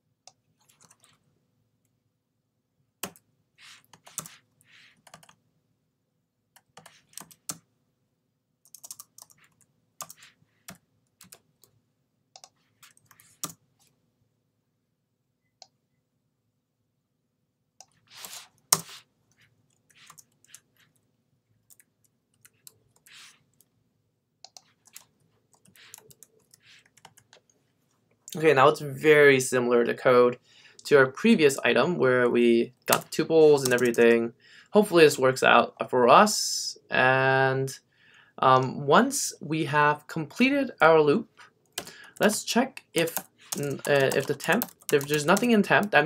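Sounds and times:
typing on keyboard: 3.9 - 4.4, 5.0 - 5.4, 6.6 - 7.6, 8.7 - 11.5, 12.4 - 13.6, 24.4 - 27.5, 32.9 - 34.0, 41.7 - 45.9.

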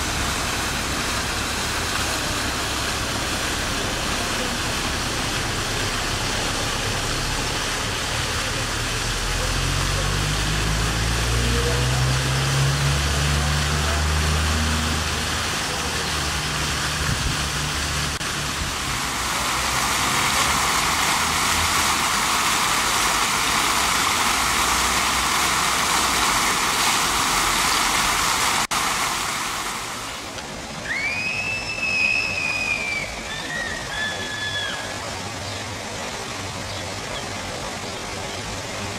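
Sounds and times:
fountain splashing into basin: 0.0 - 38.9
water spilling over cascade: 0.0 - 38.9
gull call: 30.9 - 35.0.

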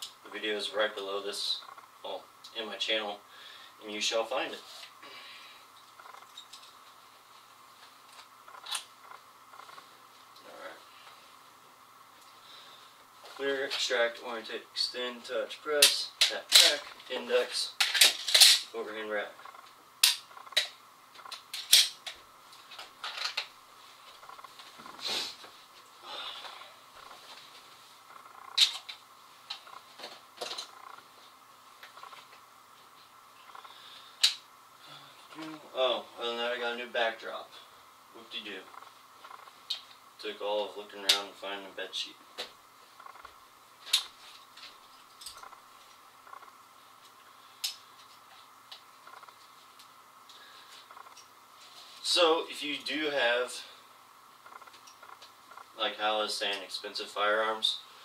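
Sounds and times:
faint steady whine: 0.0 - 58.0
soft rustle of movement: 22.3 - 33.7.

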